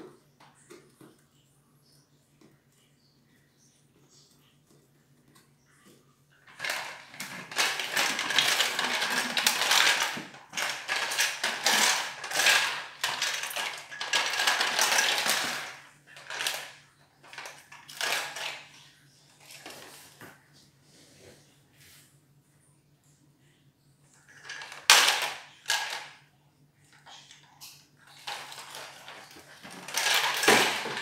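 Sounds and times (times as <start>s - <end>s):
plastic toy ball clattering on tiles: 6.4s - 18.9s, 24.2s - 26.2s, 27.0s - 31.0s.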